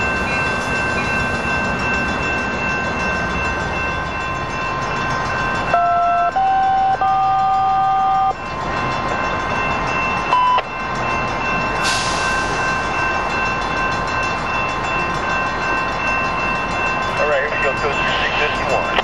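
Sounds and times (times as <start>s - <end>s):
train running noise: 0.0s - 19.0s.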